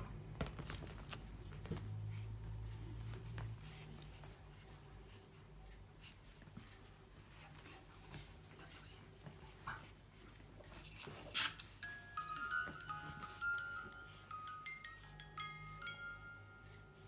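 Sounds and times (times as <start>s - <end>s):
low steady hum: 0.0s - 17.0s
puppies scratching on rug: 0.6s - 11.8s.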